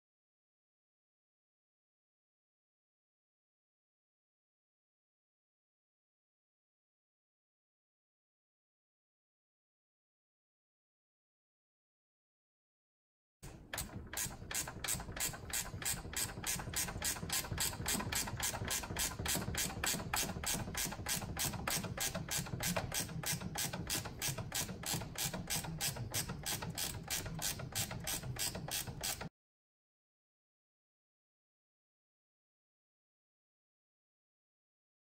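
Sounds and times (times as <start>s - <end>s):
ratchet wrench clicking: 13.8s - 29.3s.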